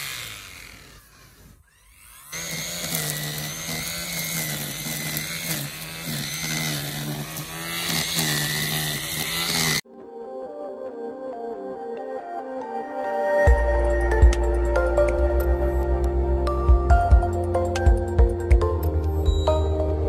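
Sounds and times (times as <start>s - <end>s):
line trimmer whining: 0.0s - 9.8s.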